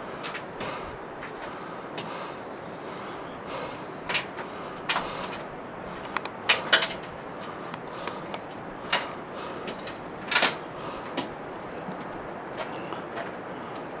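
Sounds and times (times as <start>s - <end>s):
steady hiss: 0.0s - 14.0s
footsteps on metal ladder: 4.0s - 13.4s.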